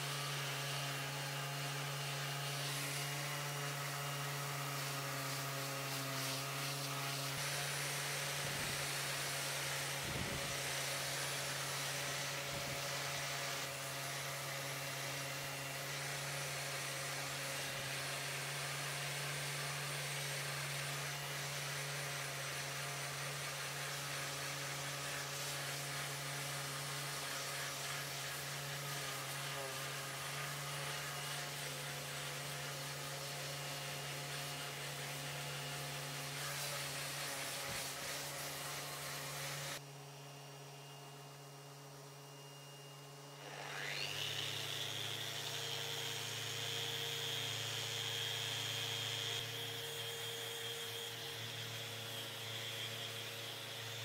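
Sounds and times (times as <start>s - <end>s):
belt sander running: 0.0s - 54.0s
orbital sander whine: 0.0s - 54.0s.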